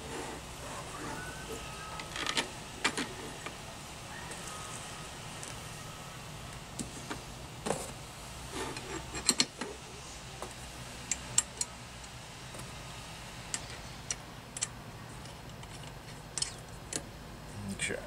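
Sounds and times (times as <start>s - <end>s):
low steady hum: 0.0s - 18.0s
metal fasteners clinking: 8.7s - 9.6s, 13.5s - 17.0s.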